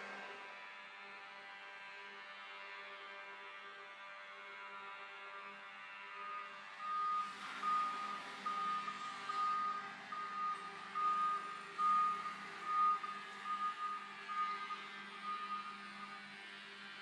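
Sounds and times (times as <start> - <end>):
forklift warning beeper: 6.8 - 16.3.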